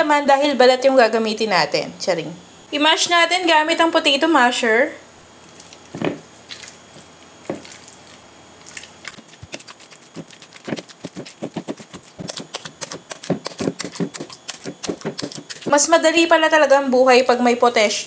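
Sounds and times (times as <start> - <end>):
masher squishing banana peels: 5.4 - 15.9.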